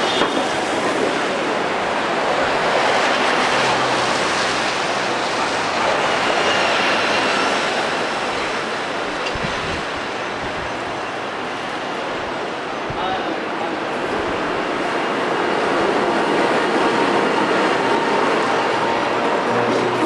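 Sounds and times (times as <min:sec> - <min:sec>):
buses driving past: 0:00.0 - 0:20.0
heavy city traffic: 0:00.0 - 0:20.0.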